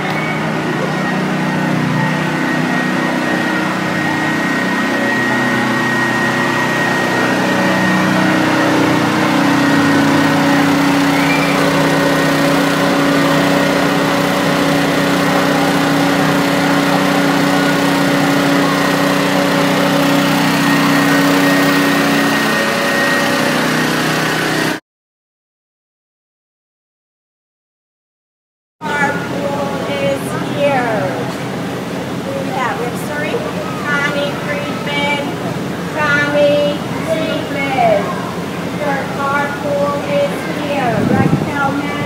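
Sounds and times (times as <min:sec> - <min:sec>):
engine drone with high whine: 0:00.0 - 0:24.8, 0:28.8 - 0:42.0.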